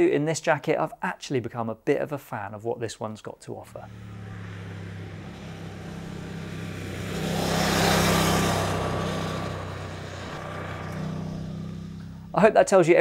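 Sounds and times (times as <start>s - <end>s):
motorcycle riding past: 3.6s - 12.4s.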